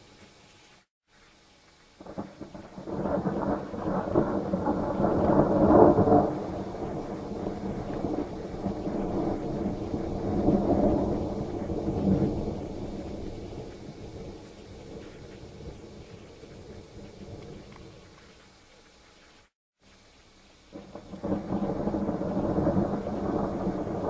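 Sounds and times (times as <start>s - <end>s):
rolling thunder: 2.0s - 18.0s, 20.7s - 24.0s.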